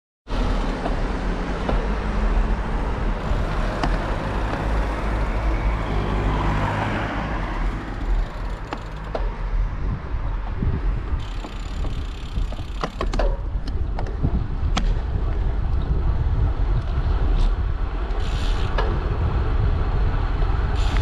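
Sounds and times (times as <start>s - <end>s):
bicycle tyre noise on road: 0.3s - 21.0s
wind on microphone: 0.3s - 21.0s
sharp clicks and rattles: 3.2s - 5.9s, 7.4s - 9.4s, 11.2s - 14.2s.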